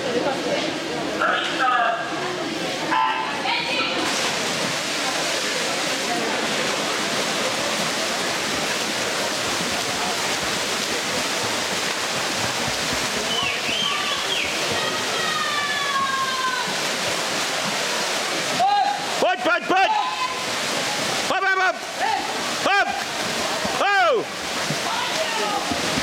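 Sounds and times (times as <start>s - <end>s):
swimmers splashing: 0.1s - 26.0s
spectators cheering: 13.2s - 16.8s.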